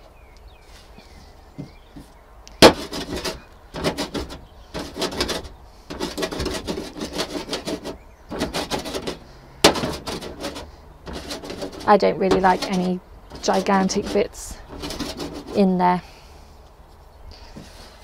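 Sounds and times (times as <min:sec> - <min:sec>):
herb cutter chopping leaves: 0:02.6 - 0:15.6.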